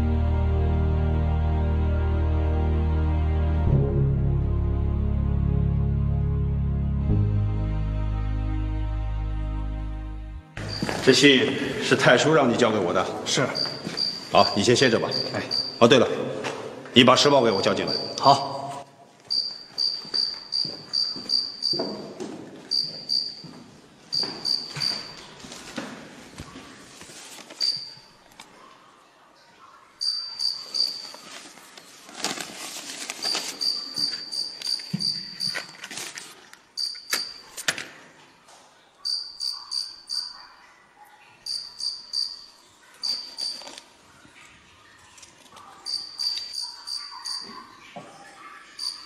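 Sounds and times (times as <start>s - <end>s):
cricket chirping: 10.6s - 11.3s, 13.4s - 16.0s, 17.7s - 18.4s, 19.3s - 22.0s, 22.7s - 23.5s, 24.1s - 25.3s, 27.6s - 28.0s, 30.0s - 31.2s, 33.2s - 35.7s, 36.8s - 37.4s, 39.0s - 40.5s, 41.4s - 43.8s, 45.8s - 47.6s, 48.8s - 49.0s.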